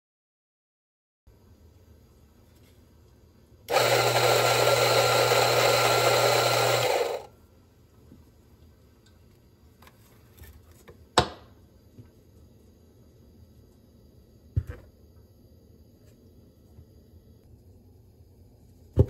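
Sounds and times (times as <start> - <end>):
coffee grinder motor running: 3.7 - 7.3.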